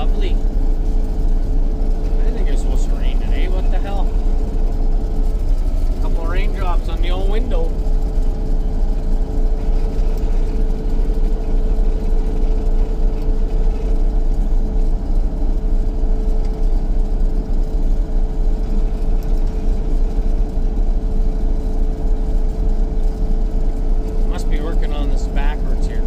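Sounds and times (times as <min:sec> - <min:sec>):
combine harvester droning: 0:00.0 - 0:26.0
constant hum: 0:00.0 - 0:26.0.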